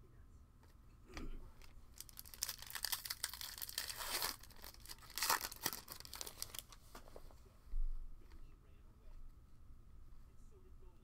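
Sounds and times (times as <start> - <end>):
foil wrapper tearing and crinkling: 2.0 - 6.8.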